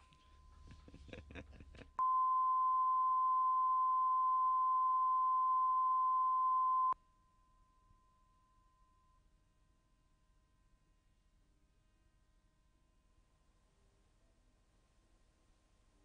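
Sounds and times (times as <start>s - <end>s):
steady pure test tone: 2.0s - 7.0s.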